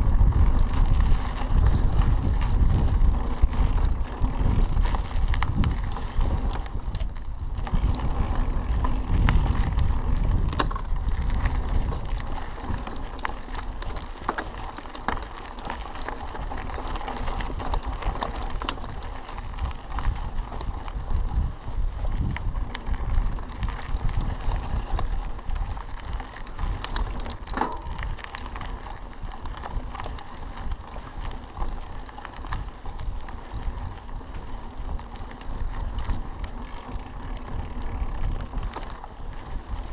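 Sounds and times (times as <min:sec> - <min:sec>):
wind on microphone: 0:00.0 - 0:12.9, 0:17.2 - 0:31.4
bike rattling over bumps: 0:00.0 - 0:39.9
bike tyres rolling on dirt: 0:00.0 - 0:39.9.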